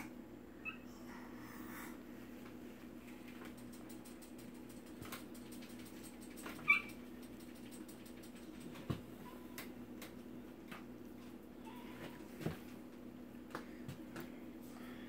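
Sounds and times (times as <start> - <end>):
faint clicks and knocks: 2.4 - 11.4.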